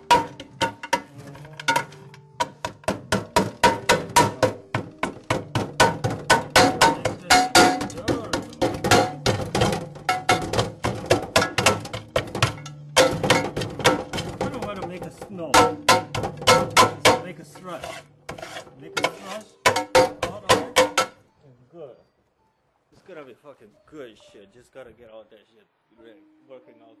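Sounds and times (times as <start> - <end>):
knife chopping dry ice in metal pot: 0.0 - 21.1.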